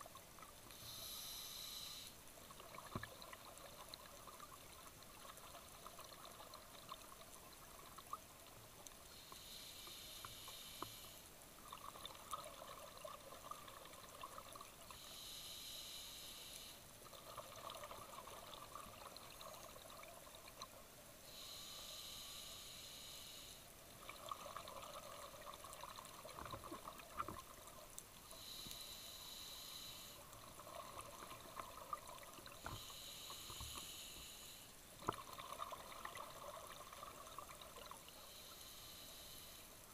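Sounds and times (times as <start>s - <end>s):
diver inhaling through regulator: 0.7s - 2.2s, 9.2s - 11.2s, 15.0s - 16.8s, 21.3s - 23.6s, 28.3s - 30.2s, 32.6s - 34.7s, 38.2s - 39.7s.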